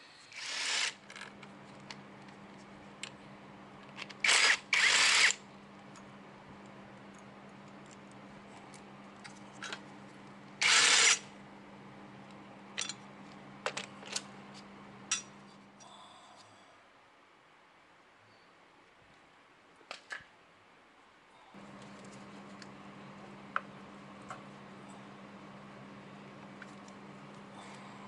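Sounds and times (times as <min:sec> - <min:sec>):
cordless driver whirring: 0:00.3 - 0:01.3, 0:04.2 - 0:05.4, 0:10.6 - 0:11.2.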